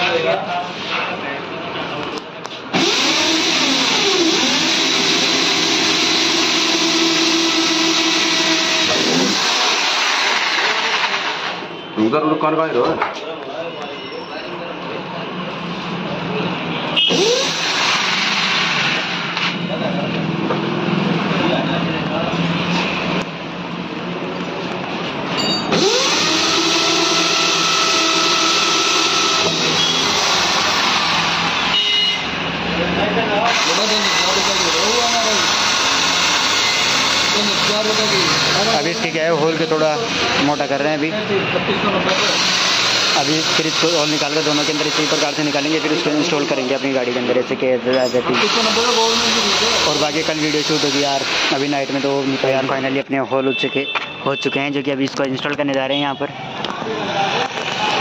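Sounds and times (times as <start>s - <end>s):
electric drill boring through metal: 2.7s - 11.6s, 17.0s - 19.6s, 25.4s - 31.8s, 33.4s - 41.1s, 42.1s - 47.2s, 48.0s - 52.7s.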